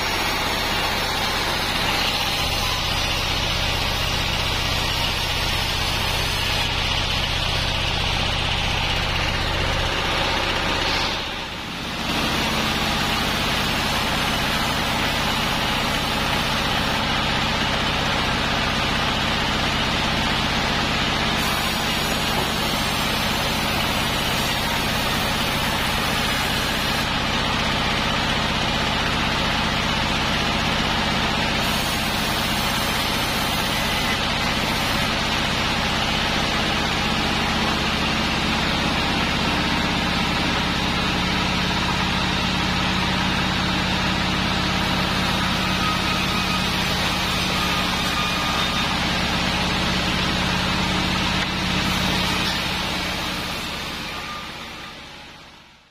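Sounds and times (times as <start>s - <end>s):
band saw cutting log: 0.0s - 55.4s
stationary engine running: 0.0s - 55.9s.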